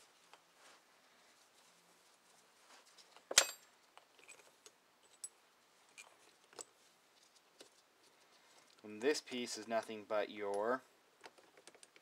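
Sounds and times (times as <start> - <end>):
metal parts clinking: 3.0 - 6.7.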